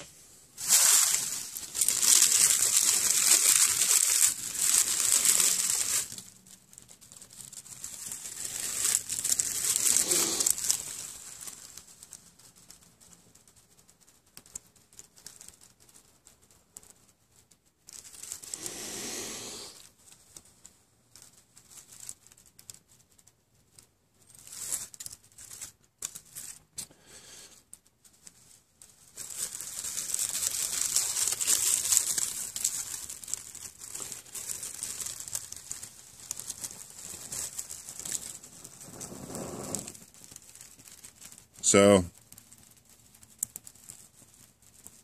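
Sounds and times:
dry leaves crinkling: 0.0 - 12.8, 28.1 - 45.0.

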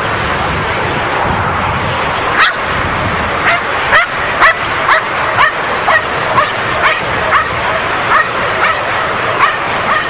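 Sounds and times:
stadium hum: 0.0 - 10.0
dog barking in high yelps: 2.4 - 2.7, 3.4 - 10.0.

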